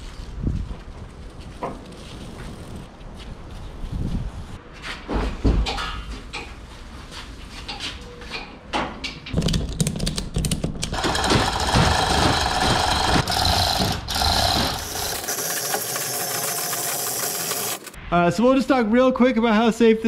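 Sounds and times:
scattered knocks: 0:09.3 - 0:17.7
chain links rattling over hoist: 0:10.9 - 0:18.0.

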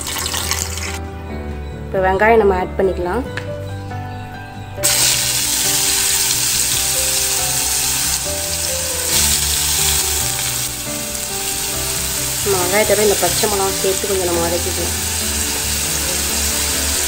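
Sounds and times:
shallots sizzling in hot oil: 0:00.0 - 0:01.0, 0:04.8 - 0:17.0.

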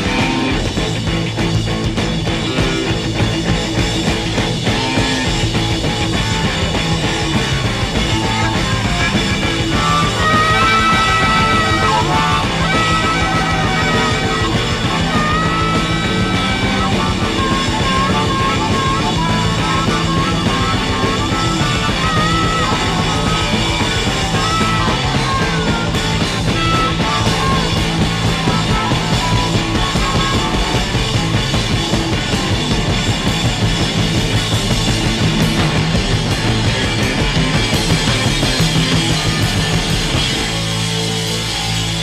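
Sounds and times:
rock music: 0:00.0 - 0:42.0.

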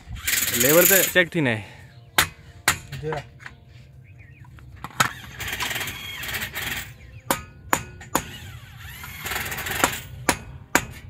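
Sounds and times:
rough scraping: 0:00.0 - 0:01.4
hammer striking steel: 0:02.2 - 0:03.1, 0:07.3 - 0:08.4, 0:09.8 - 0:11.0.

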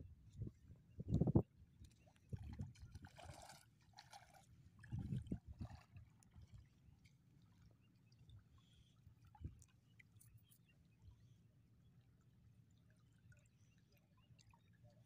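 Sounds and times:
legs splashing through water: 0:02.4 - 0:06.6.

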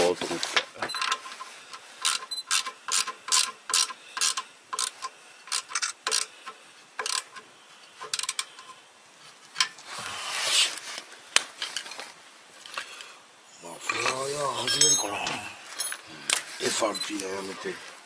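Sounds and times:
wrench clicking: 0:01.0 - 0:07.4, 0:08.0 - 0:08.7.

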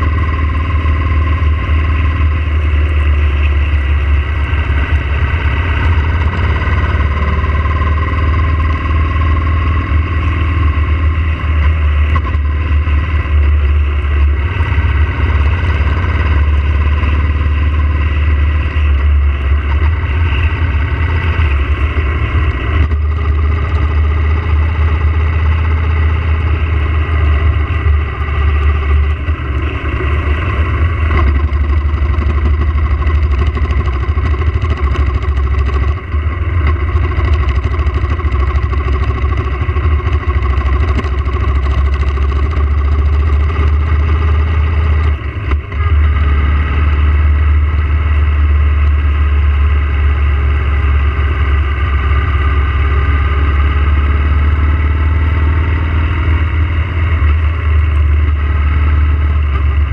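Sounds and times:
motorcycle engine rumbling: 0:00.0 - 0:59.9.

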